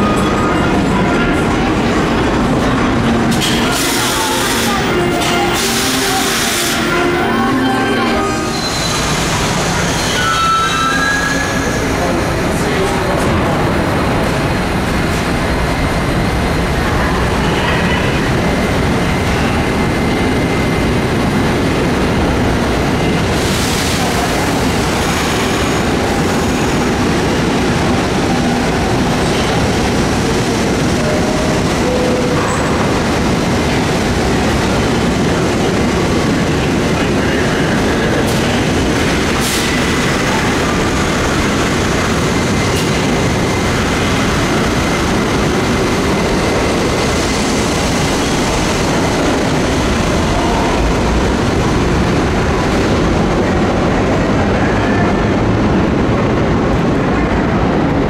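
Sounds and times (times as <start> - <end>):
subway train rumble: 0.0 - 58.0
high wheel squeal: 7.8 - 12.0.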